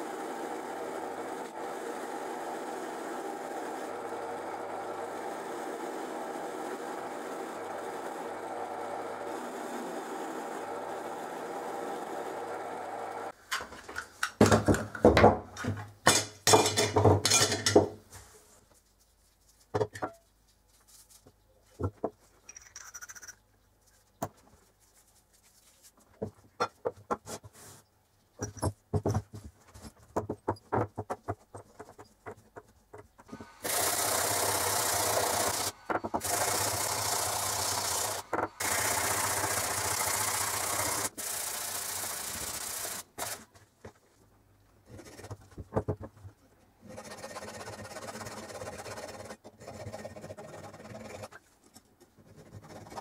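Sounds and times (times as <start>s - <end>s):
drill press motor running: 33.3s - 43.4s.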